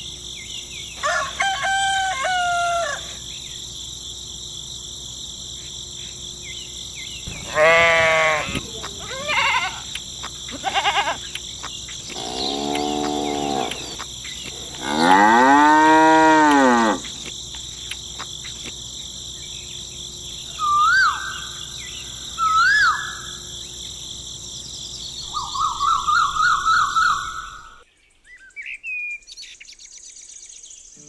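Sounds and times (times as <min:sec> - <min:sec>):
cattle mooing: 0:07.3 - 0:09.9, 0:12.1 - 0:17.1.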